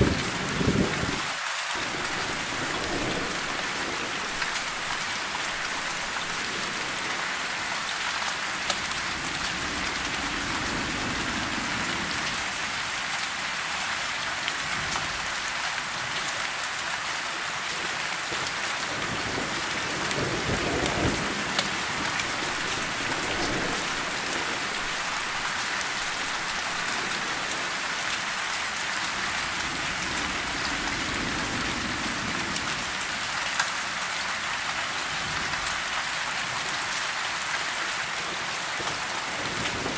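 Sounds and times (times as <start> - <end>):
rain on leaves: 0.0 - 39.9
distant thunder rumble: 1.8 - 7.9, 19.0 - 28.4.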